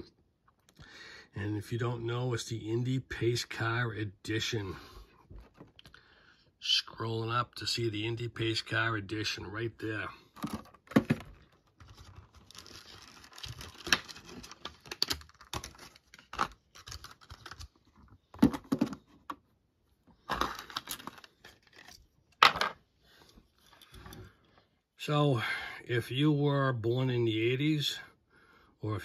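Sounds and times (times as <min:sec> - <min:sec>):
plastic blister pack tearing: 0:10.4 - 0:17.9.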